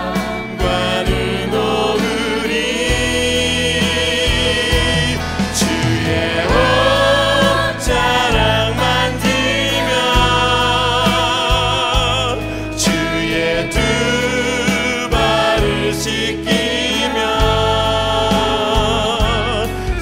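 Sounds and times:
electric bass notes: 0.0s - 20.0s
voices singing with vibrato: 0.0s - 20.0s.

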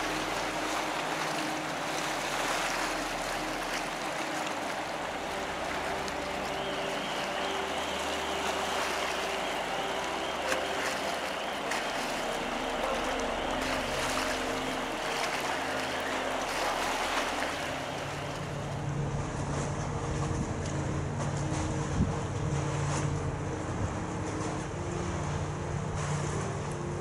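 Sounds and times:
water churning hiss: 0.0s - 18.8s
deep ferry engine drone: 0.0s - 27.0s
ferry engine hum: 0.0s - 27.0s.

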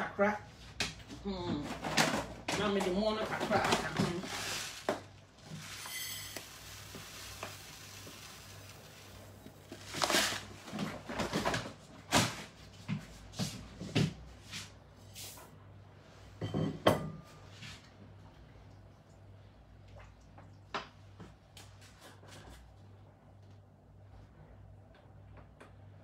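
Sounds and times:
containers and utensils clattering: 1.7s - 12.3s.

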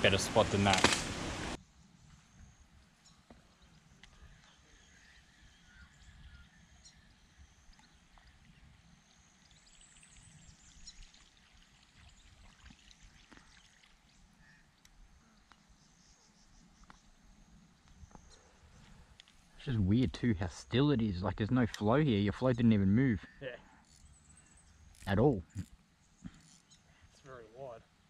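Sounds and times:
small ticks: 12.0s - 19.5s, 23.7s - 27.0s.

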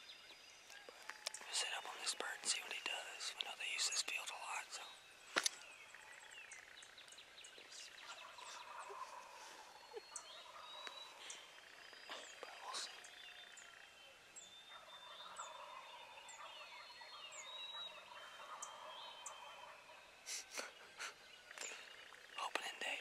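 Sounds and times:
songbirds chirping and whistling: 0.0s - 23.0s
faint turkey gobbling: 7.6s - 14.0s, 14.7s - 22.4s.

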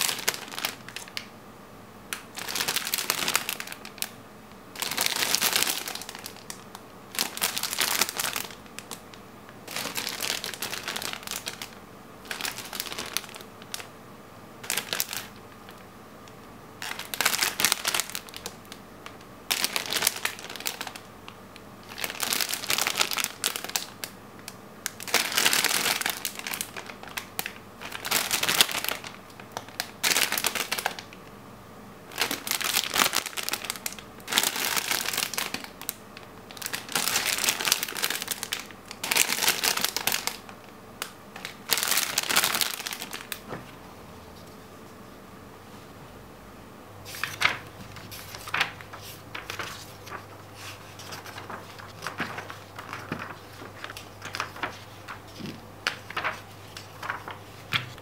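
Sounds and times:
plastic bags crinkling: 0.0s - 1.3s, 2.1s - 13.9s, 14.6s - 15.8s, 16.8s - 31.2s, 32.1s - 43.6s, 47.1s - 58.0s.

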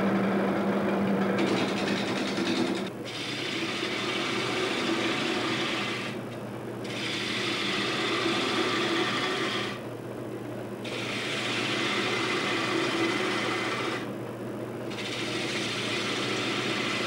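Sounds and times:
lathe humming: 0.0s - 10.0s, 10.7s - 17.0s
turning tool hissing scrape: 3.1s - 6.2s, 6.8s - 9.8s, 10.8s - 14.1s, 14.9s - 17.0s.

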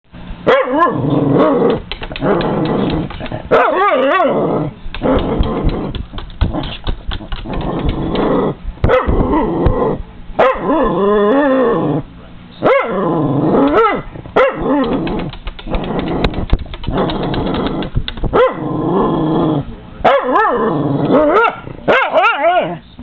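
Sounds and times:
dog barking: 0.4s - 1.0s, 3.5s - 4.3s, 8.9s - 9.2s, 10.4s - 10.8s, 12.6s - 13.0s, 13.7s - 14.8s, 18.3s - 18.6s, 20.0s - 20.6s, 21.2s - 22.8s
dog growling: 0.8s - 10.0s, 10.6s - 12.2s, 12.8s - 19.7s, 20.3s - 21.8s.

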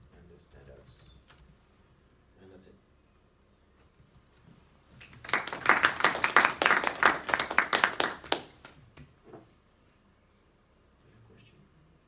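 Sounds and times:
audience applauding: 5.0s - 8.8s.

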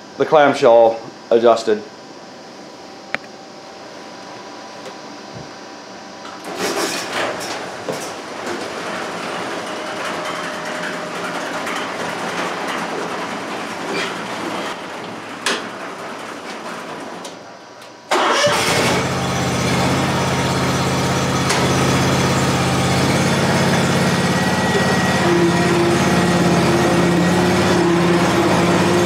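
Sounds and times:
mower engine starting and idling: 6.4s - 17.5s, 18.1s - 29.0s
garage door rumbling open: 6.4s - 29.0s.

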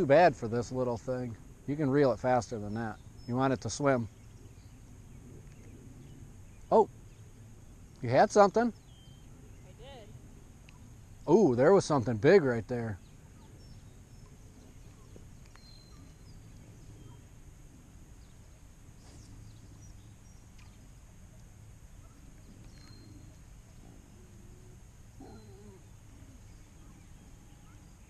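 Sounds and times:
low steady rumble: 0.0s - 28.0s
bird chirps: 1.9s - 11.0s, 12.8s - 17.4s, 18.2s - 28.0s
farm animal calls: 22.8s - 28.0s.

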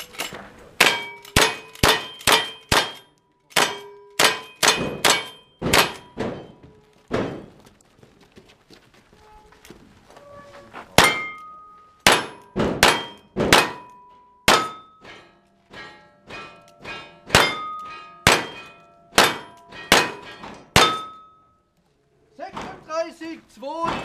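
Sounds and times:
steel target ringing: 0.8s - 6.6s, 11.0s - 21.5s.

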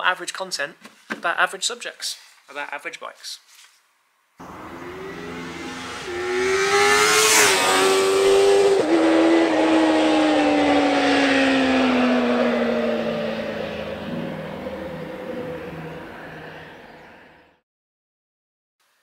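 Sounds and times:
vehicle accelerating past: 4.4s - 17.6s.

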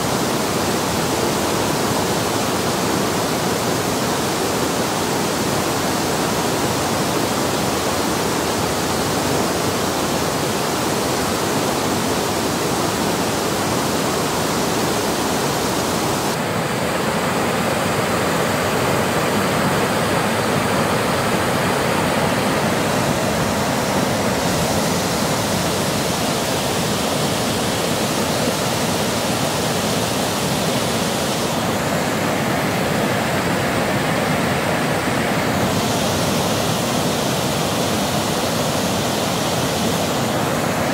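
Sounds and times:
water rushing over weir: 0.0s - 40.9s.

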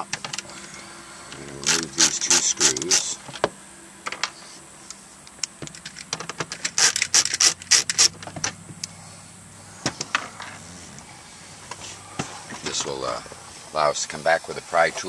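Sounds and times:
screws clicking and rattling: 1.6s - 3.1s, 5.7s - 8.2s.

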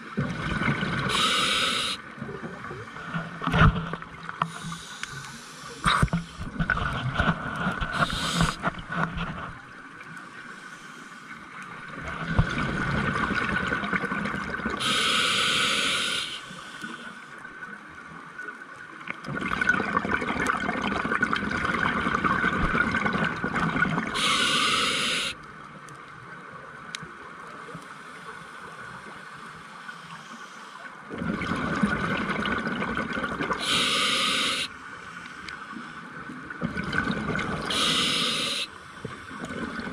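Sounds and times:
regulator inhalation hiss: 1.1s - 2.0s, 4.5s - 6.1s, 7.9s - 8.6s, 14.8s - 17.3s, 24.2s - 25.4s, 33.6s - 35.5s, 37.7s - 39.1s.

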